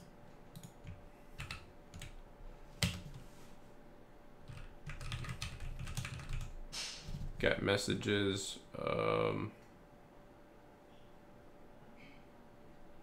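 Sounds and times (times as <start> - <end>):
keyboard typing: 0.5 - 2.2, 4.5 - 6.5.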